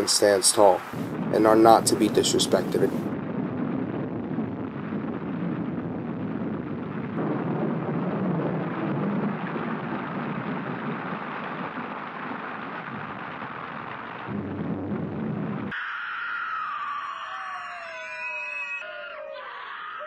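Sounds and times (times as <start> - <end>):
rainstorm rushing: 0.0 - 15.7
wind: 0.0 - 20.0.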